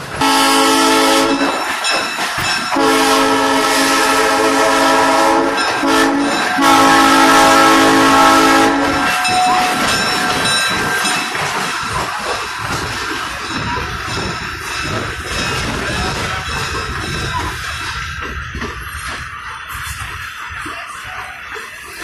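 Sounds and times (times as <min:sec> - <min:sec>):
train wheels clattering on rails: 0:00.0 - 0:22.0
locomotive horn blasts: 0:00.2 - 0:01.6, 0:02.7 - 0:09.8.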